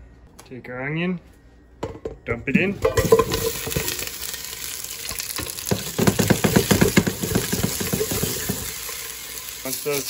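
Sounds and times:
stirring knocks and scrapes in pot: 0:02.8 - 0:04.0, 0:05.7 - 0:08.8
onions sizzling in oil: 0:02.8 - 0:10.0.

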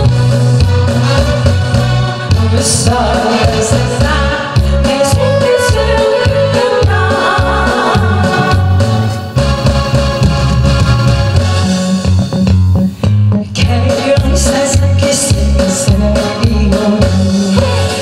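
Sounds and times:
backing music with low beat: 0:00.0 - 0:18.0
woman singing into a microphone: 0:02.3 - 0:09.1, 0:13.5 - 0:18.0.

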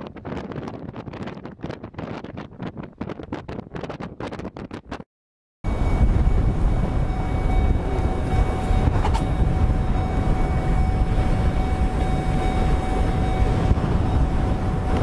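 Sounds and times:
tornado roaring: 0:05.7 - 0:15.0.

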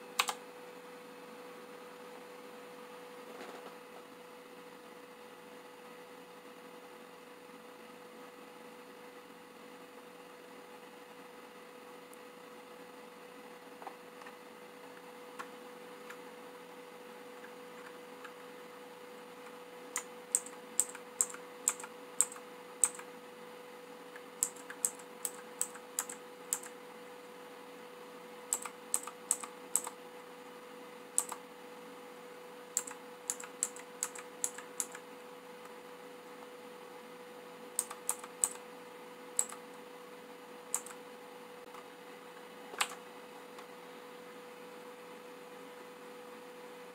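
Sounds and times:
faint steady hum: 0:00.0 - 0:46.9
mechanical keyboard clicking: 0:00.2 - 0:00.4, 0:20.0 - 0:23.0, 0:24.4 - 0:26.7, 0:28.5 - 0:30.0, 0:31.2 - 0:31.4, 0:32.8 - 0:35.0, 0:37.8 - 0:38.6, 0:39.4 - 0:39.6, 0:40.7 - 0:41.0.

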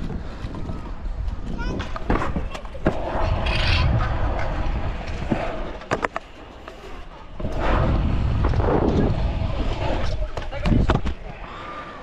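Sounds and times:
scooter wheels rolling on concrete: 0:00.0 - 0:12.0.

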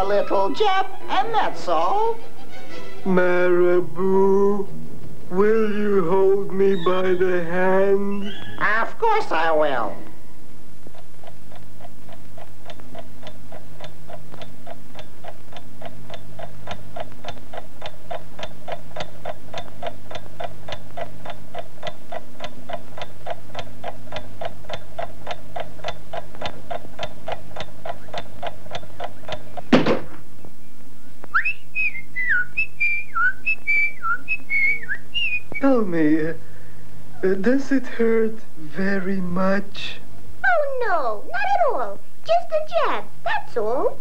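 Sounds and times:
low hum: 0:00.0 - 0:42.3
clock ticking: 0:10.9 - 0:29.7
gliding whistled notes: 0:31.3 - 0:35.8.

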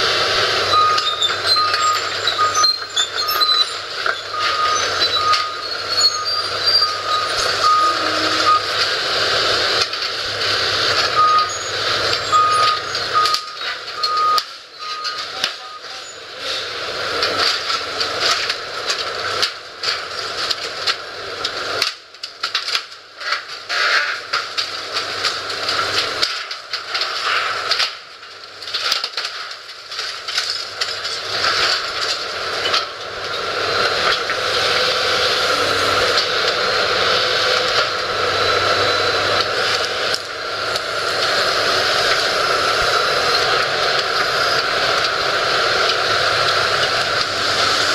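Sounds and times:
excavator engine running: 0:00.0 - 0:47.9
reversing alarm beeping: 0:00.6 - 0:08.8, 0:11.0 - 0:16.3, 0:38.3 - 0:39.4.

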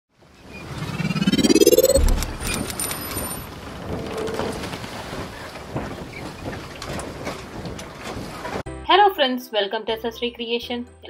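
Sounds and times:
rising sweep: 0:00.5 - 0:03.4
low boom: 0:00.9 - 0:02.8.

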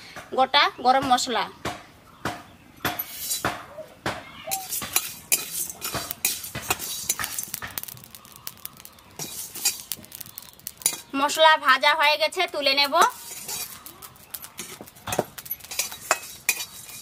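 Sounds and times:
metal spatula scraping a pan: 0:03.0 - 0:03.5, 0:04.5 - 0:11.3, 0:12.6 - 0:17.0.

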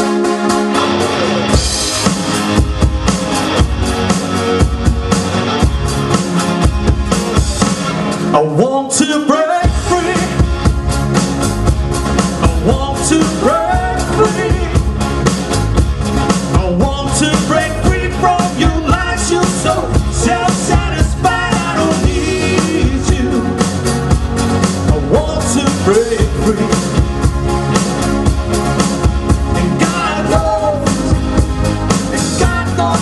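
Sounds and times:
electric guitar: 0:00.0 - 0:08.4
bass guitar: 0:00.0 - 0:33.0
drum kit: 0:00.0 - 0:33.0
male and female vocals: 0:12.4 - 0:14.9, 0:16.7 - 0:23.6, 0:29.6 - 0:31.2, 0:32.2 - 0:33.0.

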